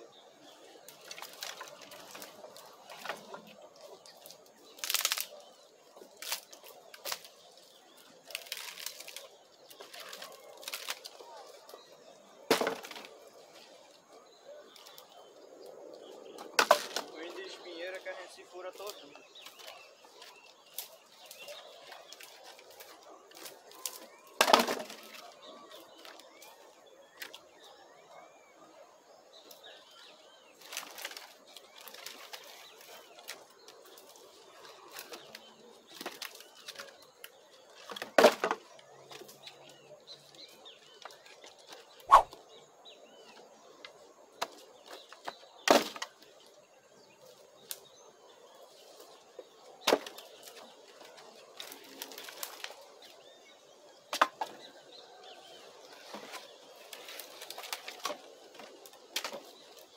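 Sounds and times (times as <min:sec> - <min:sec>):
birds chirping faintly: 0:00.0 - 0:59.9
wood rustling: 0:00.7 - 0:11.8, 0:12.4 - 0:15.1, 0:16.4 - 0:26.2, 0:30.6 - 0:39.7, 0:40.9 - 0:42.4, 0:55.8 - 0:59.9.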